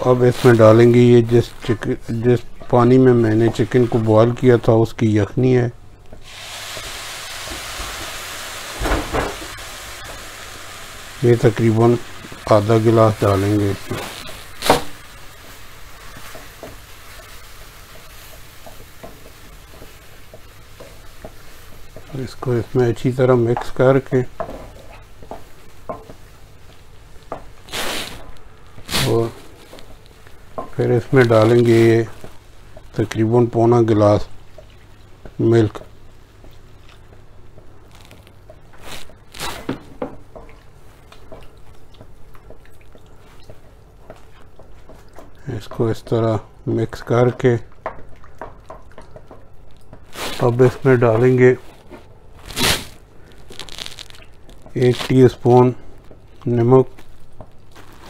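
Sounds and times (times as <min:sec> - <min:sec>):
roux sizzling in a pan: 0:06.1 - 0:58.0
wooden spatula scraping and tapping pan: 0:16.1 - 0:22.5, 0:23.4 - 0:27.6, 0:29.7 - 0:30.8, 0:46.9 - 0:52.1.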